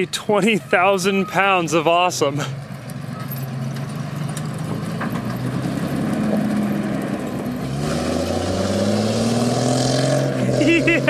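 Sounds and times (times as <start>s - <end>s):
fire truck engine running: 0.0s - 7.8s
chained tyres churning snow: 1.5s - 11.0s.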